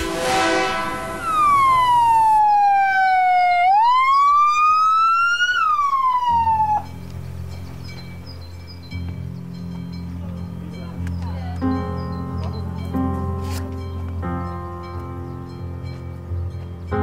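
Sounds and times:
ambulance siren wailing: 0:00.0 - 0:07.0.

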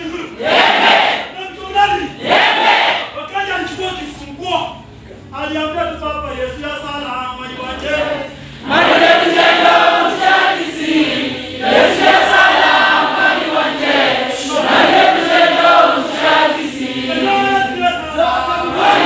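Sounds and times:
choir singing: 0:00.4 - 0:01.3, 0:02.2 - 0:03.1, 0:07.8 - 0:19.0.

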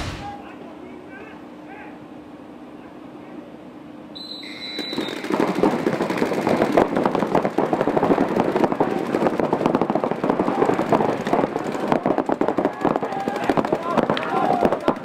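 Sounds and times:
paintball markers firing: 0:04.8 - 0:15.0.

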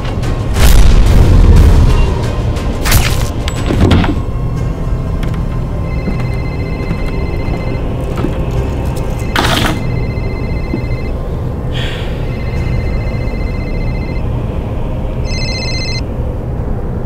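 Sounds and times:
low steady drone: 0:00.0 - 0:17.0
mobile phone ringing: 0:05.8 - 0:07.9, 0:09.2 - 0:11.2, 0:12.2 - 0:14.2, 0:15.2 - 0:16.1.

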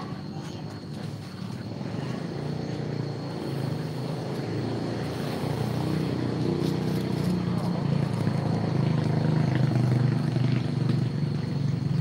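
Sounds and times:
low engine drone: 0:00.0 - 0:12.0.

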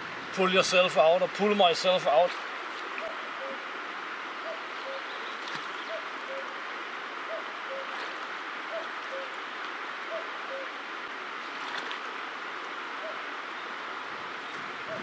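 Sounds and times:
steady rushing hiss: 0:00.0 - 0:15.0
cuckoo calling: 0:03.0 - 0:03.7, 0:04.4 - 0:06.6, 0:07.3 - 0:08.0, 0:08.7 - 0:09.4, 0:10.1 - 0:10.8, 0:13.0 - 0:13.7.

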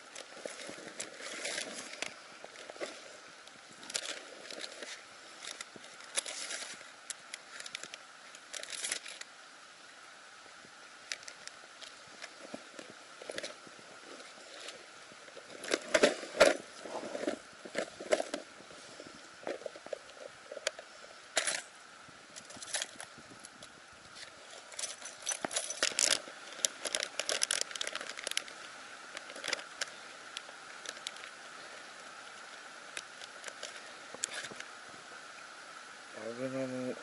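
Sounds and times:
handling noise on microphone: 0:11.2 - 0:31.3.

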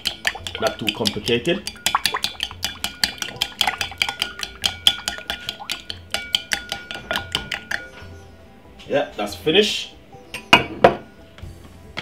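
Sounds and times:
metal utensil clinking in bowl: 0:00.0 - 0:08.0.

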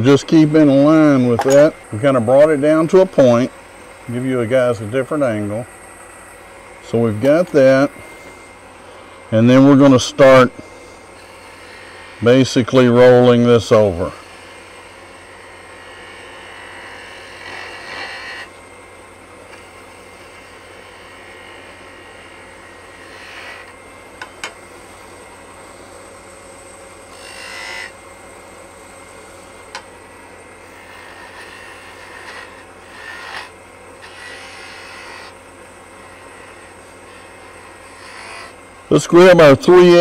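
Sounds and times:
wood lathe motor hum: 0:00.0 - 0:40.0
turning tool scraping hiss: 0:06.8 - 0:18.5, 0:19.5 - 0:23.8, 0:29.2 - 0:35.4, 0:36.0 - 0:39.0.

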